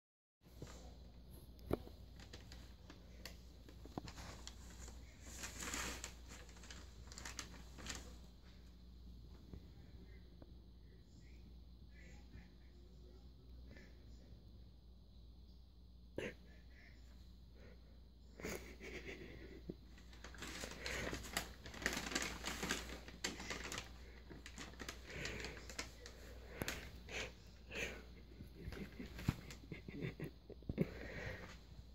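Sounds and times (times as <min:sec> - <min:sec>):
paper bag crinkling and rustling: 0:01.9 - 0:08.4, 0:19.9 - 0:27.3, 0:28.6 - 0:29.9.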